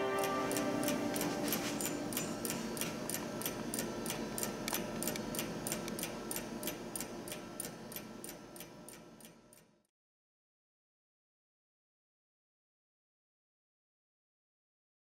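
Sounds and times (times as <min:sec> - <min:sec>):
soft background music: 0:00.0 - 0:02.8
clock ticking fast: 0:00.0 - 0:09.7.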